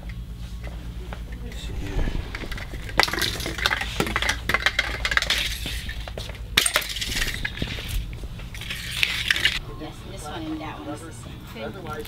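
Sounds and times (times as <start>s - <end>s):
plastic spool rolling on concrete: 1.4s - 9.6s.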